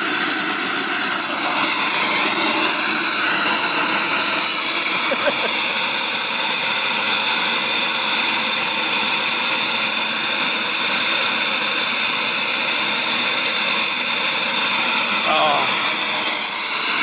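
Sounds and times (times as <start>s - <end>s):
turbine engine high whine: 0.0s - 17.0s.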